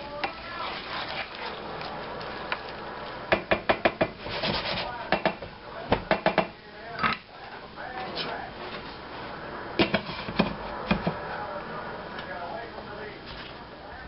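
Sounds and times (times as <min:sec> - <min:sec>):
spatula scraping meat in skillet: 0:00.2 - 0:03.3
wood knocking against pan: 0:03.3 - 0:04.2, 0:05.1 - 0:06.5.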